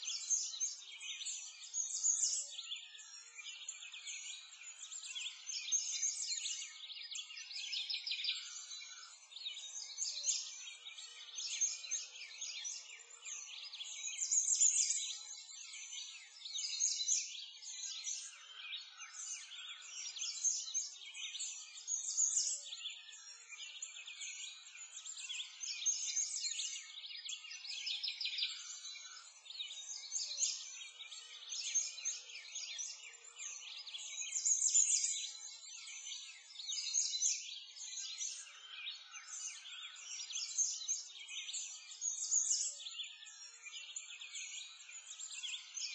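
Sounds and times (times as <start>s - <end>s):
small birds chirping: 0.0s - 45.9s.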